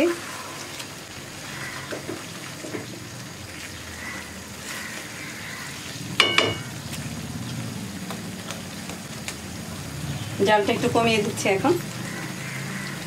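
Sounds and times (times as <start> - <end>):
gravy sizzling in a pan: 0.0 - 13.0
spatula knocking against pan: 6.2 - 6.6.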